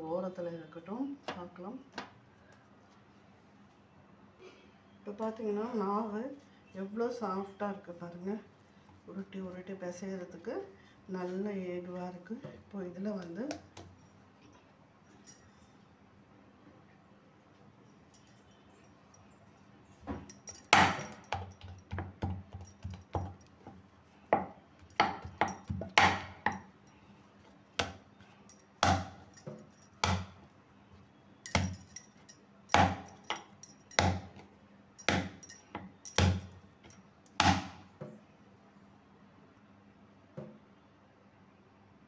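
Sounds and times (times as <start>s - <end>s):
bangles jingling: 13.9s - 15.8s, 17.8s - 23.8s, 24.8s - 27.3s, 28.1s - 30.0s, 31.4s - 37.4s
dough balls knocking on board: 20.7s - 26.6s, 30.0s - 30.4s.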